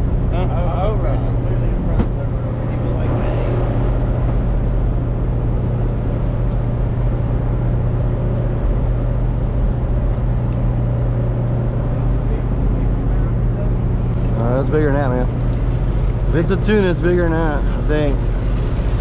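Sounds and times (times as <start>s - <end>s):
boat engines droning: 0.0s - 19.0s.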